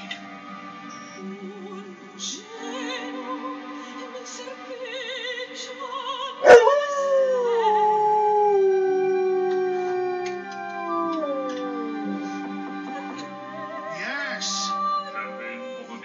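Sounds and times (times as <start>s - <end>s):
soprano singing with vibrato: 1.2s - 16.0s
dog howling: 6.4s - 13.0s.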